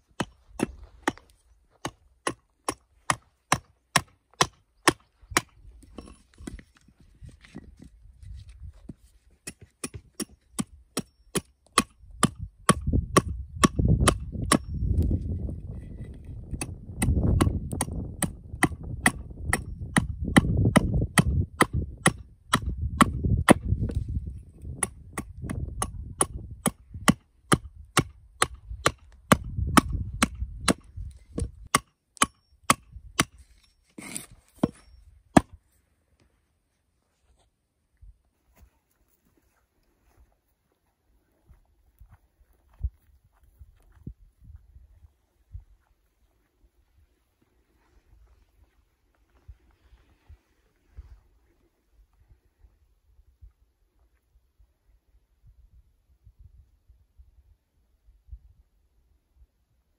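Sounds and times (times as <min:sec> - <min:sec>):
hatchet striking wood: 0:01.8 - 0:06.1, 0:09.4 - 0:14.8, 0:16.5 - 0:23.6, 0:24.8 - 0:33.4, 0:34.0 - 0:35.6.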